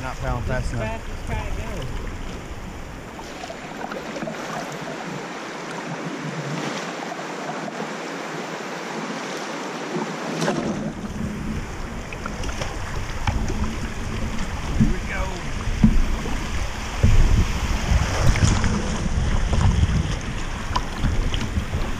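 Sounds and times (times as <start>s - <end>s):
wind buffeting microphone: 0.0s - 6.6s, 10.4s - 21.9s
river water rushing around kayak: 0.0s - 21.9s
sharp water splashes: 9.3s - 21.9s.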